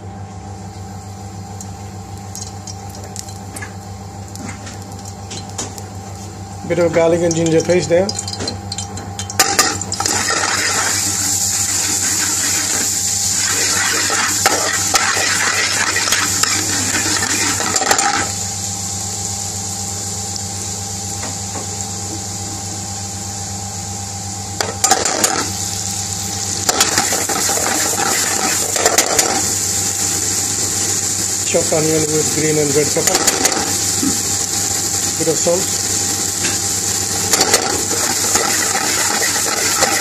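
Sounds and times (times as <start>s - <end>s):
paste frying in oil: 1.6s - 23.1s, 24.5s - 40.0s.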